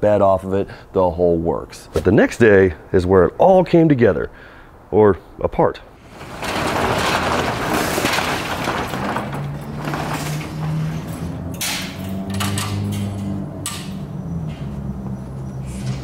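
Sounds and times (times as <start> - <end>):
metal roll-up door rattling: 6.0 - 14.1.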